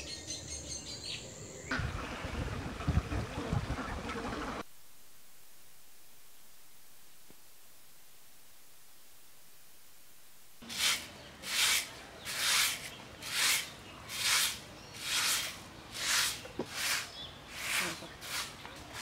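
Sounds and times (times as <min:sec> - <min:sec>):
broom sweeping concrete floor: 0:10.6 - 0:19.0.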